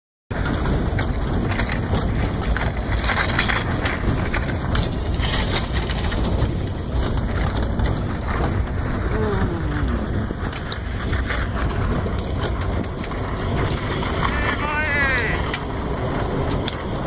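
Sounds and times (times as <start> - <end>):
crackles: 0.3 - 17.0
vehicle driving rumble: 0.3 - 17.0
wind buffeting microphone: 0.3 - 17.0.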